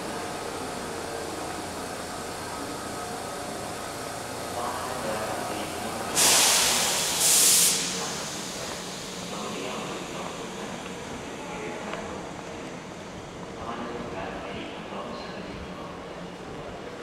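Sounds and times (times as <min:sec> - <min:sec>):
electric train humming: 0:00.0 - 0:13.2
compressed air hissing: 0:06.0 - 0:09.4.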